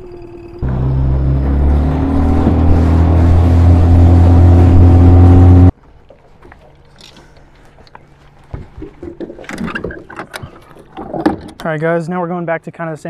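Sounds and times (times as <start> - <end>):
outboard motor running: 0.6 - 5.7.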